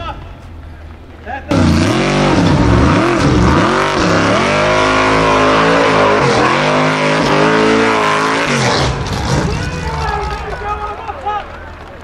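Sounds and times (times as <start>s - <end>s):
buggy engine revving hard: 1.5s - 10.4s.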